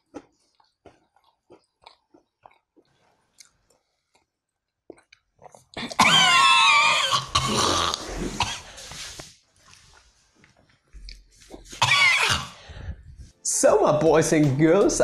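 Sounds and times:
scraping and shuffling: 8.0s - 11.9s.

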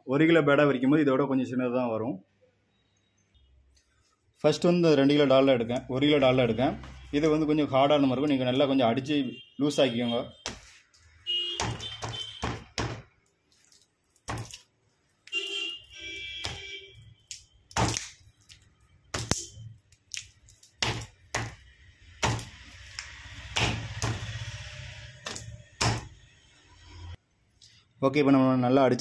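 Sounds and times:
hand smearing fat: 13.5s - 14.7s
hand slapping fat on stone: 17.3s - 18.6s.

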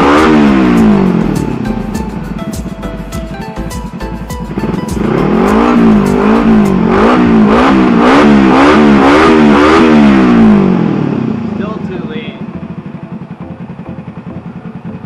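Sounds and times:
small engine revving: 0.0s - 1.7s, 4.5s - 15.0s
background music: 0.0s - 8.2s, 11.6s - 15.0s.

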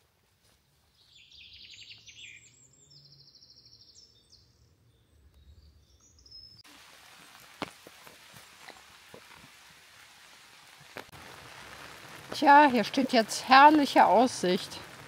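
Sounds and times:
songbird singing trills: 1.0s - 6.6s
rain hissing: 6.6s - 15.0s.

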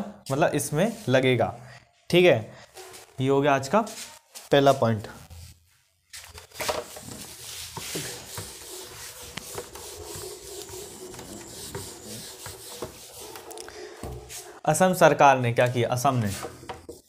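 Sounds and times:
rubbing and scratching: 6.2s - 14.6s, 15.6s - 17.0s.

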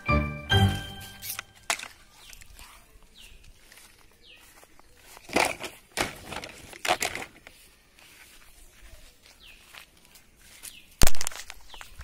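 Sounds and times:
plastic toys rattling in box: 5.2s - 7.5s.

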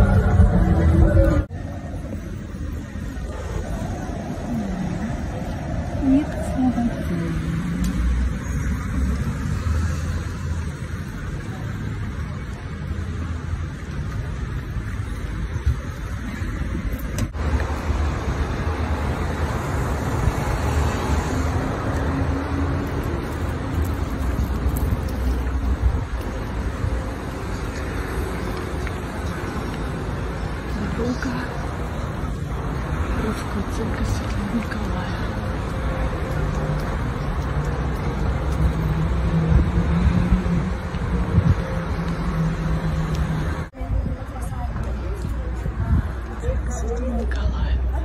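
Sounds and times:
steady low rumble: 0.0s - 7.8s
rumble of passing cars and buses: 0.0s - 48.0s
vehicle engine hum: 0.0s - 48.0s.

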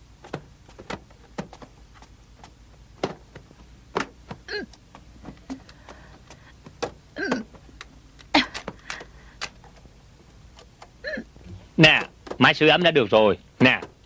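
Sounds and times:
handling clicks and knocks: 0.1s - 14.0s
person murmuring: 7.2s - 7.6s, 11.0s - 11.4s.

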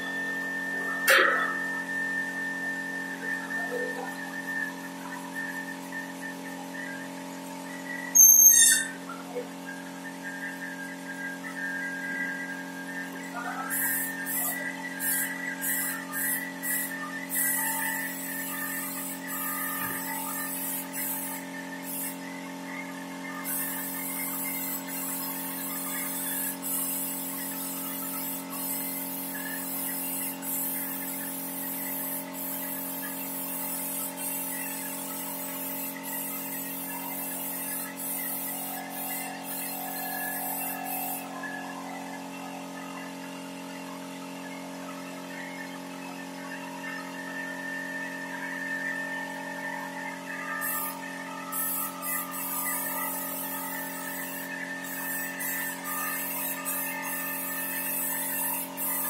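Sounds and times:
steady machine hum: 0.0s - 8.2s, 8.8s - 59.0s
spray gun hissing: 23.4s - 41.2s, 51.5s - 59.0s.

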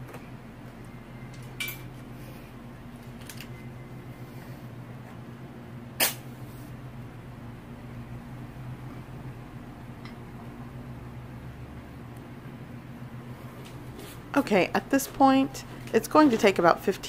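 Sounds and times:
steady low hum: 0.0s - 17.0s
sharp snap: 6.0s - 6.3s.

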